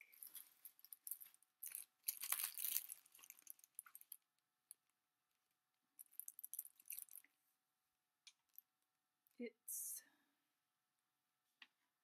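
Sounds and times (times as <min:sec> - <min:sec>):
plastic bag crinkling: 0:00.0 - 0:04.2, 0:06.0 - 0:07.2.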